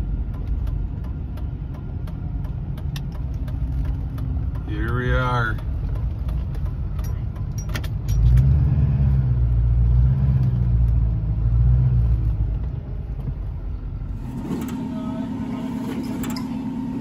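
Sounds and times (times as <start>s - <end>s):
pickup truck engine hum: 0.0s - 17.0s.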